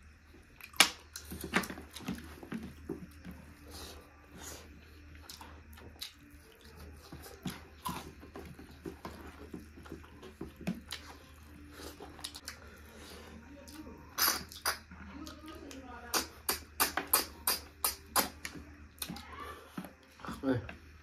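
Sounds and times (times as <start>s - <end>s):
sucking and chewing snails: 0.0s - 20.2s.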